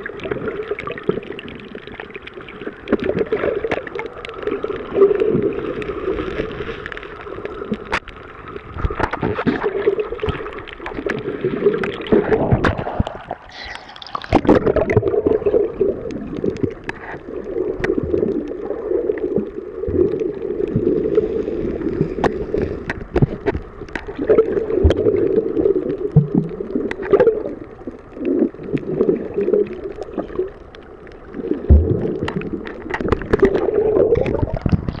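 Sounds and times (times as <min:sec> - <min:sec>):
muffled underwater gurgling: 0:08.6 - 0:35.0.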